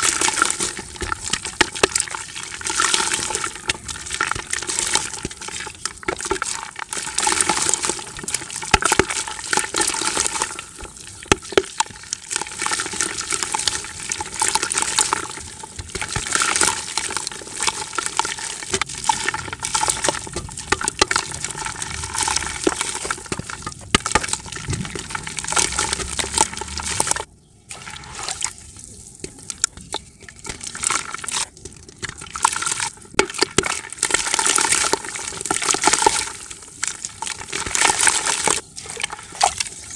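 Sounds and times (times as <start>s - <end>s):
crumbs falling into water: 0.0s - 27.3s, 29.2s - 39.9s.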